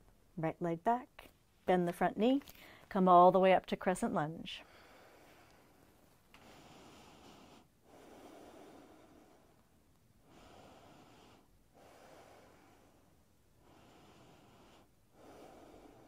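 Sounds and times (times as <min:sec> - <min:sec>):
faint slow breathing: 0:04.6 - 0:16.0.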